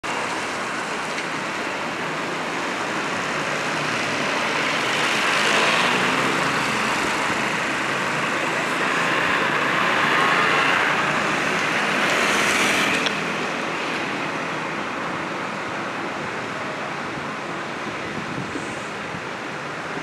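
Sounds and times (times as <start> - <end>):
cars passing: 0.0 - 20.0
motor scooters passing: 0.2 - 14.6
hiss of tyres: 18.4 - 19.1.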